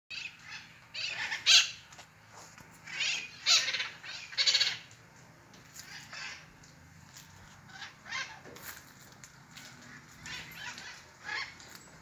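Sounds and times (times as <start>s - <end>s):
parrots screeching: 0.1s - 1.9s, 2.8s - 4.9s, 5.7s - 6.5s, 7.7s - 8.7s, 9.9s - 11.9s.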